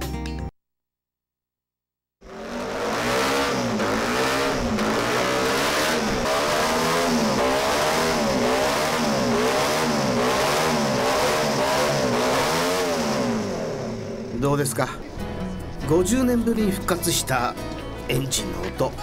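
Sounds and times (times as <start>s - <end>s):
racing engine revving: 2.2s - 14.4s.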